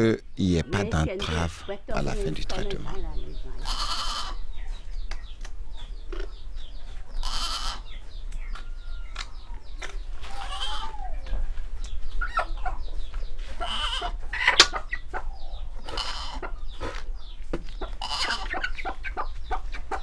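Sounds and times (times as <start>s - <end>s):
chickens clucking: 0.0s - 20.0s
harsh squawks: 3.6s - 4.4s.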